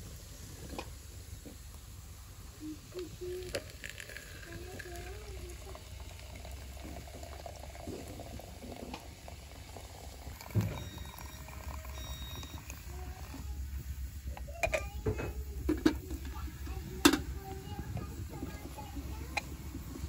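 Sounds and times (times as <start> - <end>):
water pouring into metal teapot: 2.9 - 14.0.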